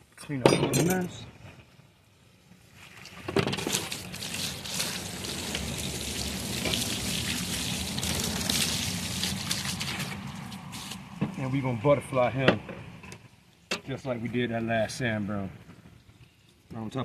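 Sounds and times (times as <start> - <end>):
hose water spraying and splashing: 2.6 - 11.2.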